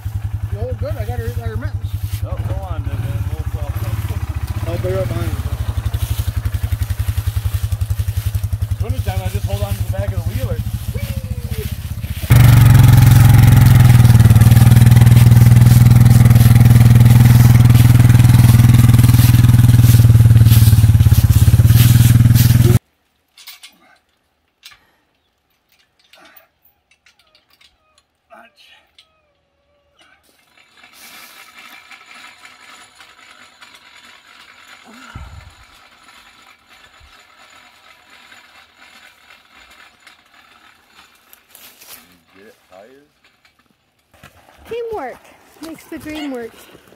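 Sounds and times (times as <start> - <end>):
atv engine running: 0.0 - 22.8, 30.5 - 42.0, 44.7 - 46.9
rope hoist clicking and rattling: 2.5 - 22.8, 30.0 - 42.4.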